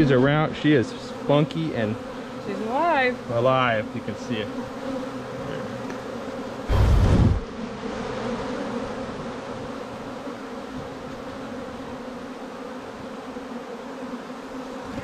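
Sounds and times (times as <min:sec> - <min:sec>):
honeybees buzzing: 0:00.0 - 0:15.0
brief rush of low noise: 0:06.7 - 0:07.5.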